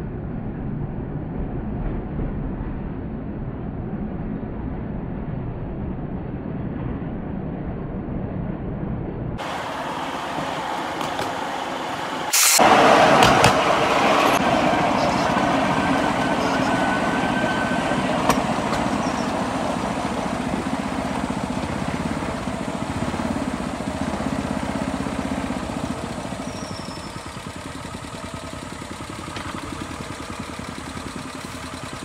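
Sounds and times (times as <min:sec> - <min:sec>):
small rail skate engine running: 0:09.4 - 0:32.0.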